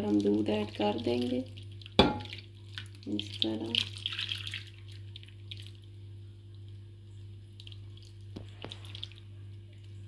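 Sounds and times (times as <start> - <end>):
liquid pouring and dripping: 0.0 - 10.0
steady low hum: 0.0 - 10.0.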